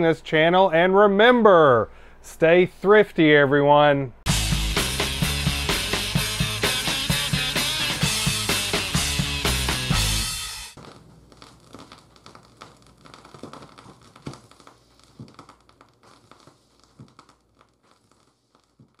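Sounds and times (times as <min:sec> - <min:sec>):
vinyl record crackles and pops: 0:04.2 - 0:19.0.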